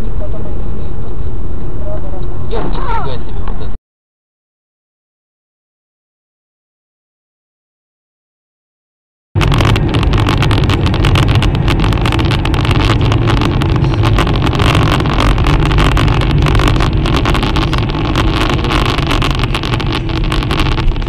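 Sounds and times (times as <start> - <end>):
car engine and tyre rumble: 9.4 - 21.0
dense crackle: 9.4 - 21.0.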